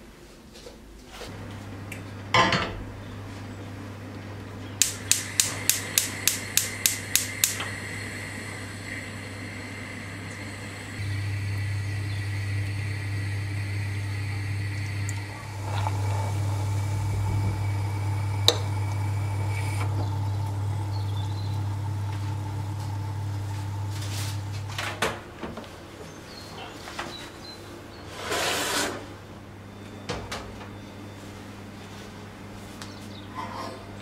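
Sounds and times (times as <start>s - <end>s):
kitchen appliance humming: 1.3s - 25.3s
sharp click: 4.8s - 7.7s.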